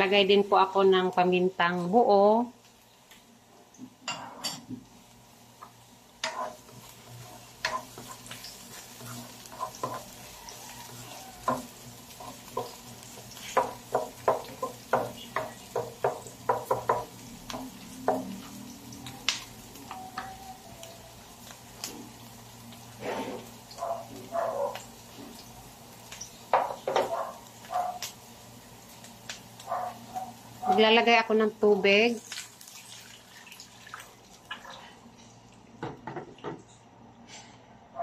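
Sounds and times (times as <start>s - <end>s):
light sizzle of frying: 0.0s - 38.0s
spatula tapping wok: 5.6s - 6.8s, 7.6s - 18.6s, 26.5s - 27.2s.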